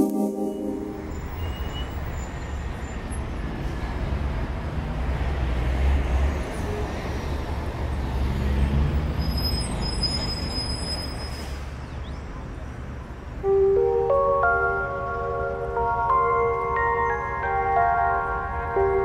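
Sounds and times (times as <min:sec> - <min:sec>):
dense wash of electronic noise: 0:00.0 - 0:01.5.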